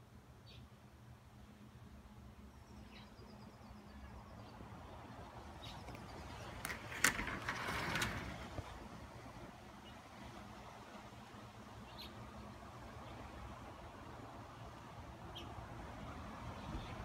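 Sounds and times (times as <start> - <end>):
screen door scraping on track: 6.2 - 9.3.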